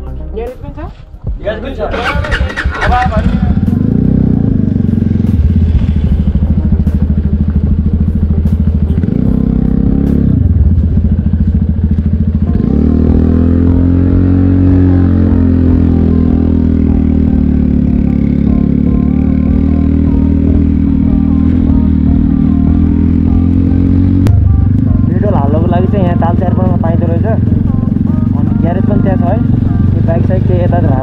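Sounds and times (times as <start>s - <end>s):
motorcycle engine running: 0.6s - 31.0s.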